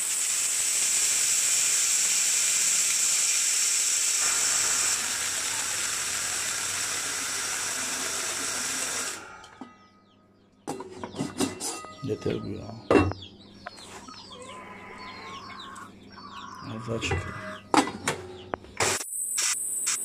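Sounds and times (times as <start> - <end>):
electric grain grinder running: 0.0 - 9.3.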